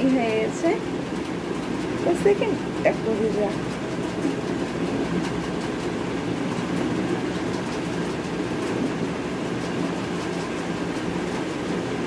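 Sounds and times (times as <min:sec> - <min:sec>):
low hum and rumble: 0:00.0 - 0:12.0.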